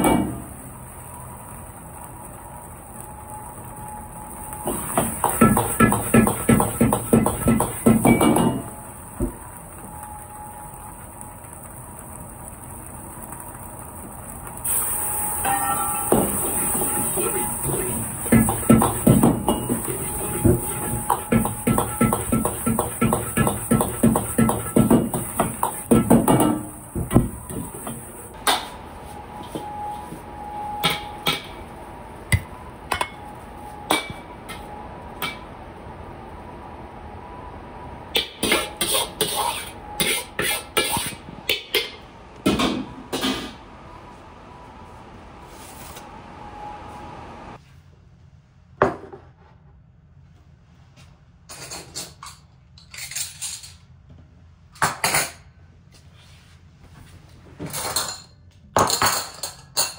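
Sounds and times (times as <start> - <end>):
utensil scraping cookware: 38.4 - 41.2
utensils and dishes clinking: 51.5 - 53.9.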